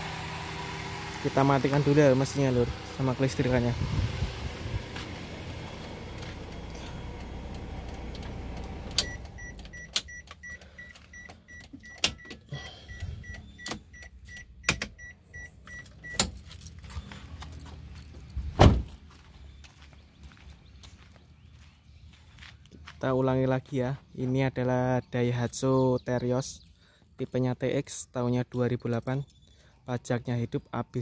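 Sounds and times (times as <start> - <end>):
car engine idling: 0.0 - 11.8
warning chime beeping: 9.0 - 16.2
keys jangling: 15.9 - 18.5
car door shutting: 18.5 - 19.0.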